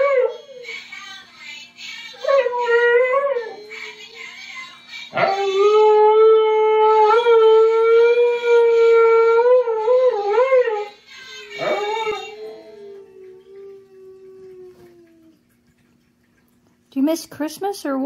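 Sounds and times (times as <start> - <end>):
dog howling: 0.0 - 0.6, 5.1 - 15.4.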